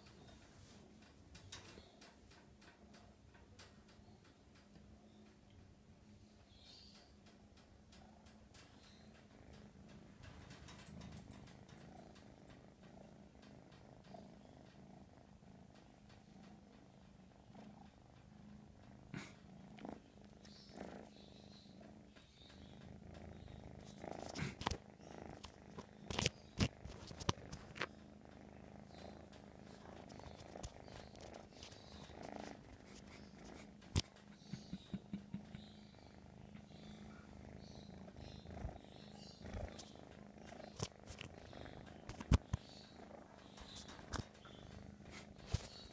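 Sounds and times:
kitten purring: 0.0 - 45.9.

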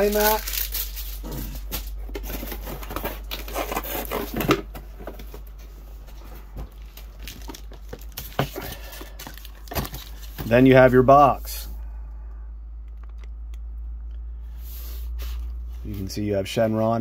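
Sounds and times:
packaging rustling: 0.0 - 10.6.

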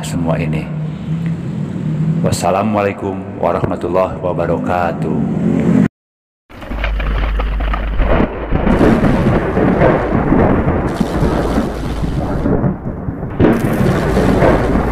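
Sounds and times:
loud continuous rumbling: 6.6 - 14.9
rain-like hiss: 10.9 - 12.6.

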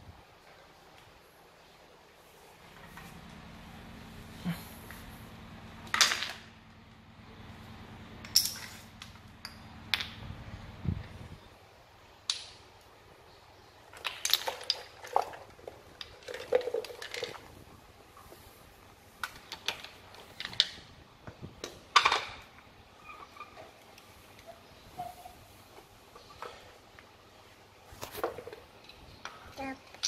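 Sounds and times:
wooden toy blocks clacking: 13.8 - 17.6.

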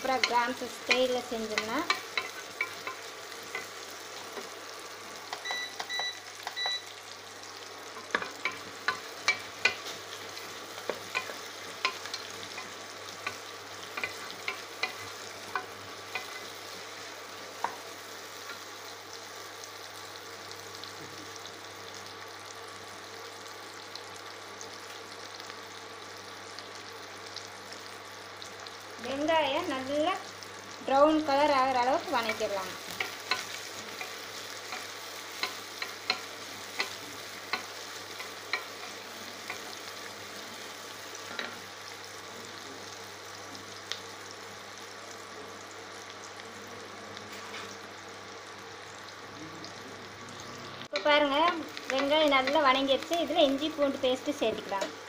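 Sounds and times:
shallots sizzling in hot oil: 0.0 - 55.0
short high beeps: 5.4 - 6.9.

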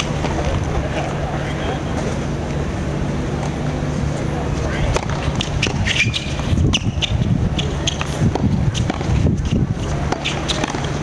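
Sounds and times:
tennis ball struck with rackets: 4.9 - 11.0.

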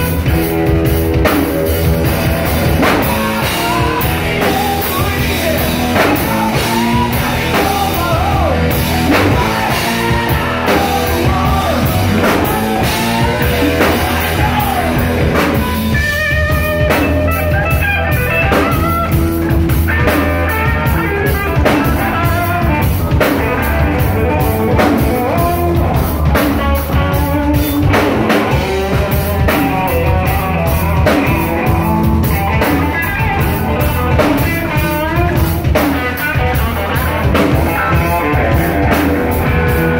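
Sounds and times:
drum kit with cymbals: 0.0 - 39.9
electric bass: 0.0 - 39.9
electric guitar: 0.0 - 39.9
person singing: 2.7 - 19.2.

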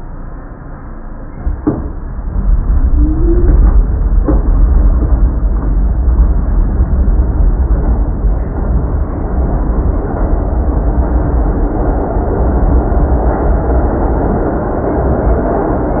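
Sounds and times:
subway train rumble: 0.0 - 16.0
sharp knocks: 1.4 - 2.5
short rising squeal: 2.8 - 3.9.

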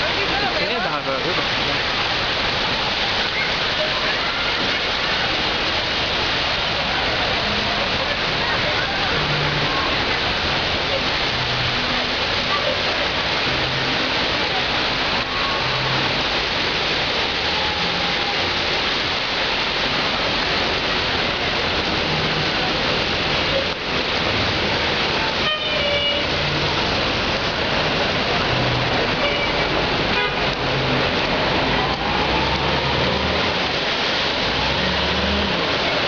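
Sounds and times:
traffic and rushing water: 0.0 - 36.0
car horn toot: 25.4 - 26.4, 29.2 - 30.5.

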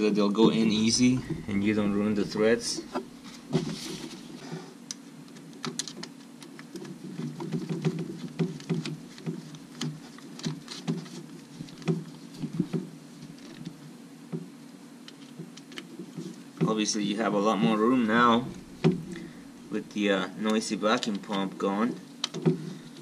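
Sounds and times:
steady low rumble: 0.5 - 3.8, 17.8 - 20.0.

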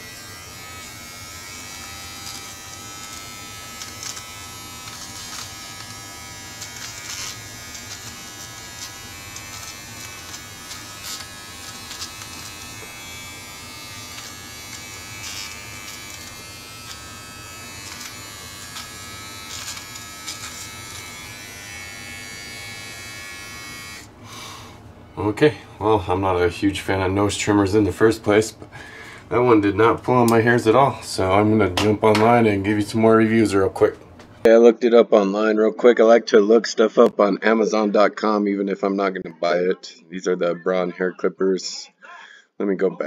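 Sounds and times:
trimmer crackles: 0.0 - 24.5
electric trimmer buzzing: 0.0 - 24.8.

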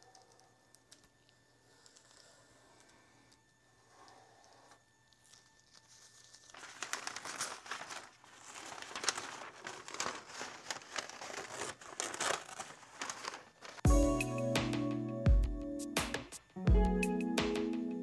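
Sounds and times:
masking paper crinkling: 5.1 - 13.9.

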